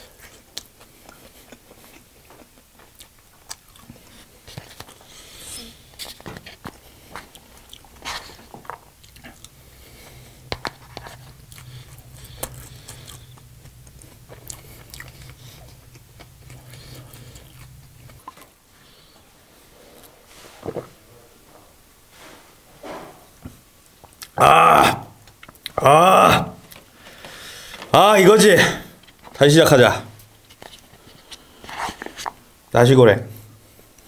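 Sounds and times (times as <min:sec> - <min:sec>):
low steady hum: 0:00.0 - 0:34.0
chewing and biting: 0:00.1 - 0:05.1, 0:05.8 - 0:18.6.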